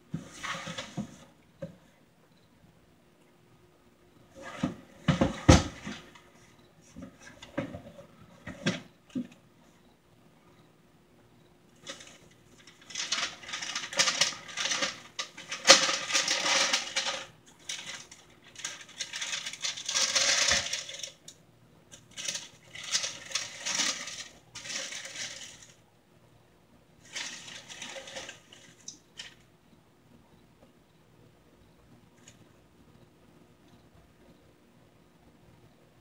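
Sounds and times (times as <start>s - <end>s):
tissue paper crinkling: 11.8s - 21.2s, 22.1s - 25.8s, 27.0s - 28.8s.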